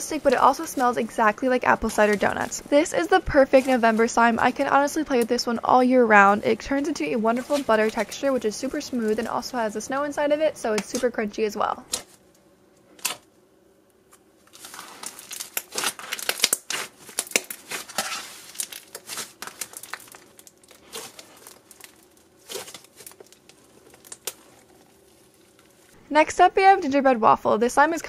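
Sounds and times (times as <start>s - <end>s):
slime crackling and popping: 14.5s - 26.0s.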